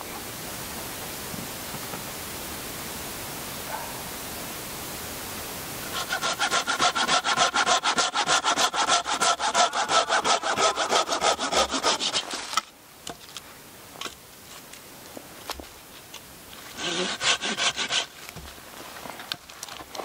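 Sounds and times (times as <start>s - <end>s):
hand saw cutting log: 5.9s - 12.7s, 16.7s - 18.3s.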